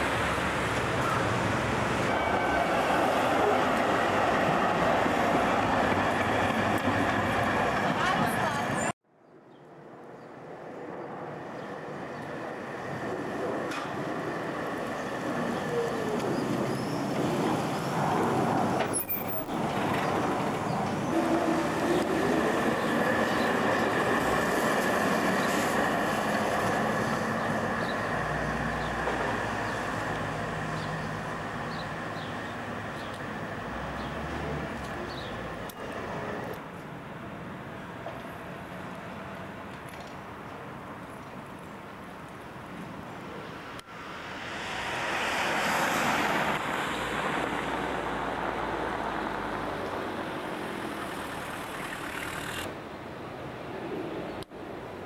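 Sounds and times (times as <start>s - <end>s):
electric tram rolling on track: 0.0s - 9.0s, 9.7s - 54.9s
vehicle passing by: 43.9s - 52.7s.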